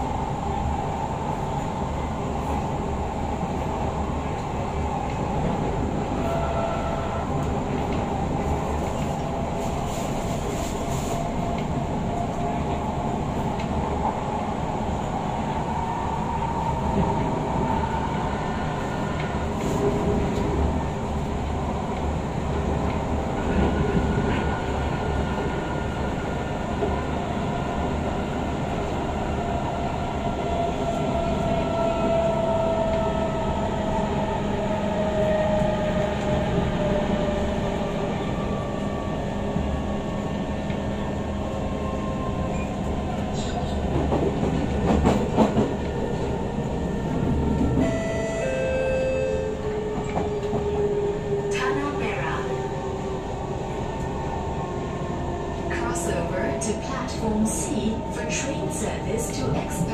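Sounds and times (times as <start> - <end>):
train wheels rumbling: 1.5 - 48.5.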